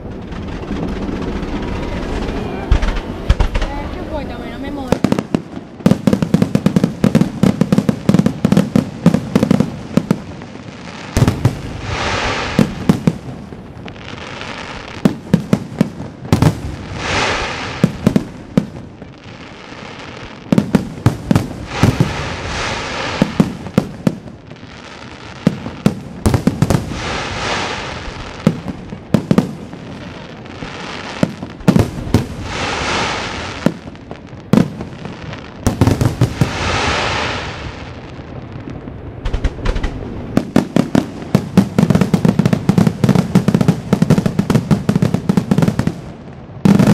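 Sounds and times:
firework bangs: 0.0s - 46.9s
firework stars hissing: 10.8s - 12.9s, 16.8s - 18.1s, 21.6s - 23.8s, 31.9s - 33.6s, 35.2s - 38.0s.

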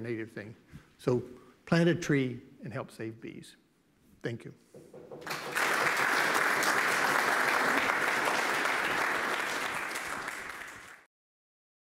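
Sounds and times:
audience applauding: 5.1s - 11.1s.

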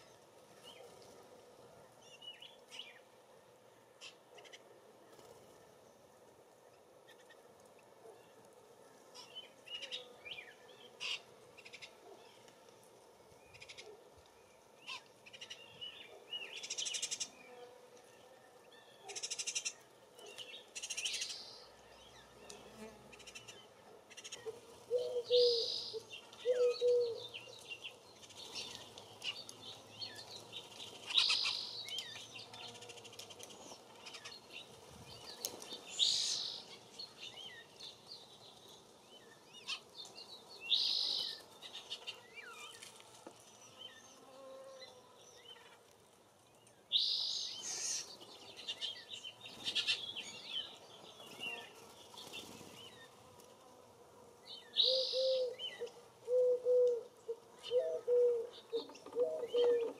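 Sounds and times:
songbirds chirping: 0.0s - 59.9s
low repeated cooing: 23.9s - 27.6s, 54.8s - 59.9s.

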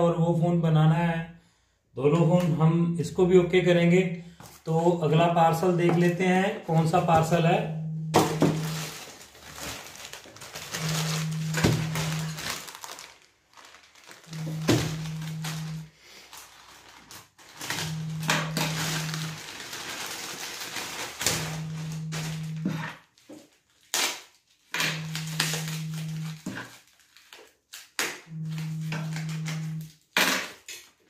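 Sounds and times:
low steady hum: 7.1s - 9.1s, 10.6s - 12.6s, 14.2s - 15.9s, 17.7s - 19.6s, 21.2s - 22.8s, 25.0s - 26.4s, 28.3s - 29.9s
plastic mailer crinkling: 8.2s - 30.1s.

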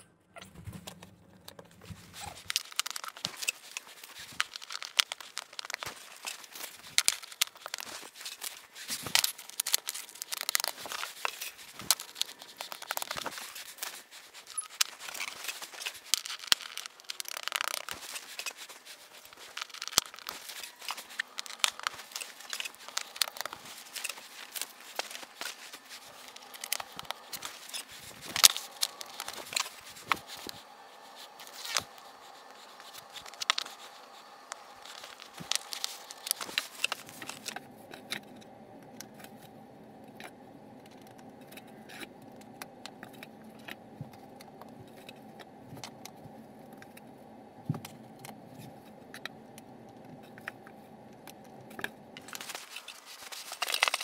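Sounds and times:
paper crinkling: 0.4s - 39.6s, 50.2s - 54.0s.

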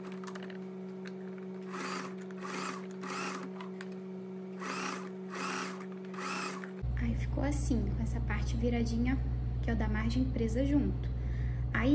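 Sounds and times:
electric sewing machine humming: 1.6s - 3.8s, 4.6s - 6.8s.

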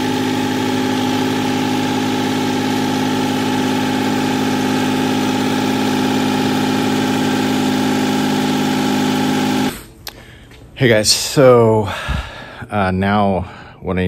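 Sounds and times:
diesel tractor engine running: 0.0s - 9.9s.

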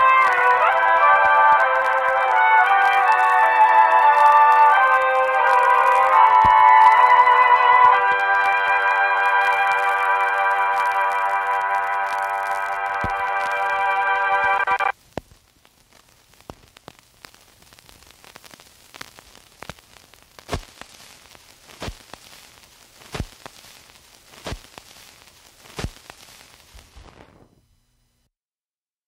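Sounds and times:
crackle and hiss: 0.0s - 28.3s
loud pops: 2.9s - 7.1s, 14.6s - 27.7s.

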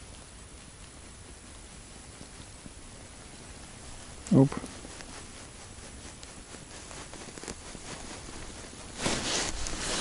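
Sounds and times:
fishing line rustling: 3.6s - 10.0s.

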